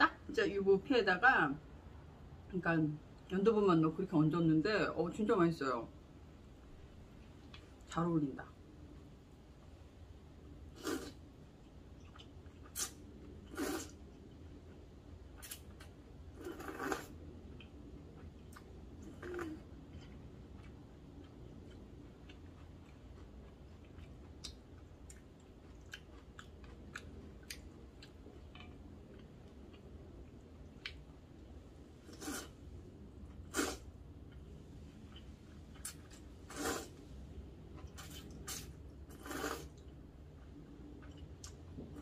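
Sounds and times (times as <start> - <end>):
soft chewing: 10.7 - 42.0
loud noodle slurps: 10.8 - 11.2, 12.8 - 14.0, 16.4 - 17.1, 32.1 - 32.5, 33.5 - 33.8, 36.5 - 37.0, 38.0 - 39.8.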